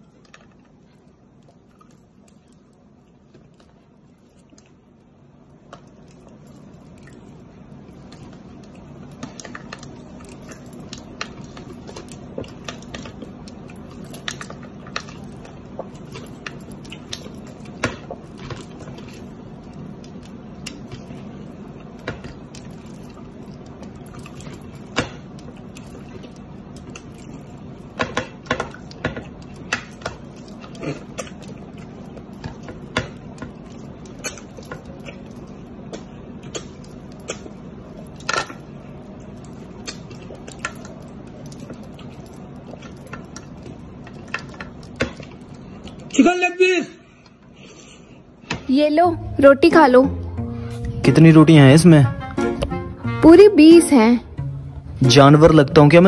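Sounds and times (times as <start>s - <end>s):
wet mouth eating sounds: 0.1s - 46.2s
steady low hum: 47.0s - 56.0s.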